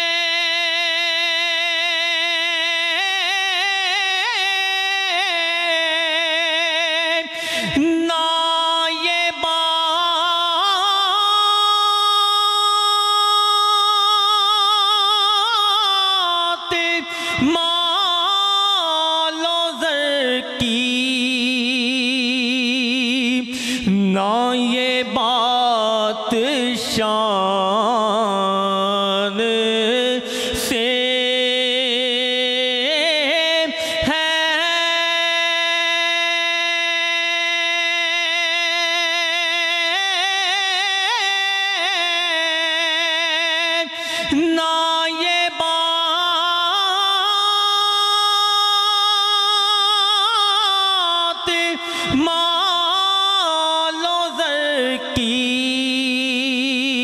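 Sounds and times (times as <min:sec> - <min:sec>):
man singing into a microphone: 0:00.0 - 0:57.0.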